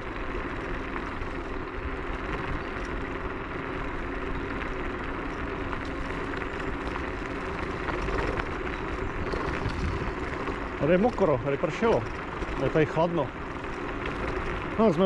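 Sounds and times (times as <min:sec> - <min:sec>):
tyres rumbling on path: 0:00.0 - 0:15.0
wind noise: 0:05.5 - 0:11.2.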